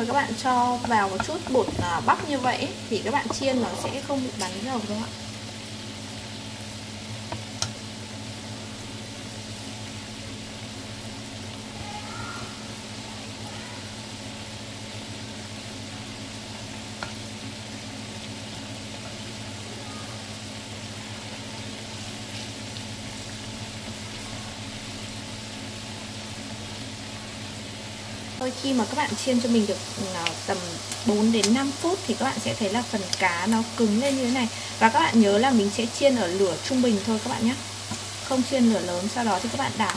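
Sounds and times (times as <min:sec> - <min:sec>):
fish sizzling in oil: 0:00.0 - 0:39.9
chopsticks clicking on pan: 0:00.8 - 0:02.4, 0:03.1 - 0:04.6, 0:07.3 - 0:07.8, 0:17.0 - 0:17.2, 0:30.2 - 0:31.7, 0:33.0 - 0:34.4, 0:39.4 - 0:39.9.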